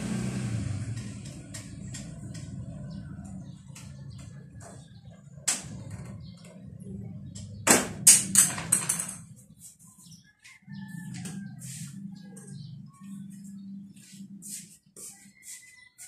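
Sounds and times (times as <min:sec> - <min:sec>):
parts knocking and clattering: 0:03.6 - 0:09.5.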